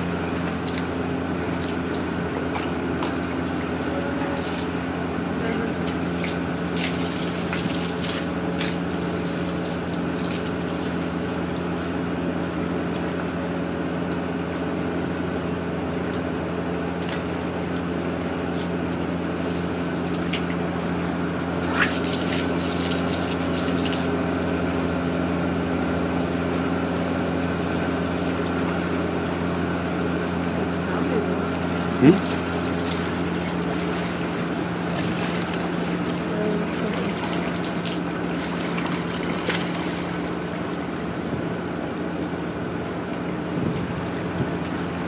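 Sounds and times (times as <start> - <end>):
water splashes: 0.0 - 12.1, 16.0 - 24.2, 30.5 - 41.8
low motor hum: 0.0 - 45.0.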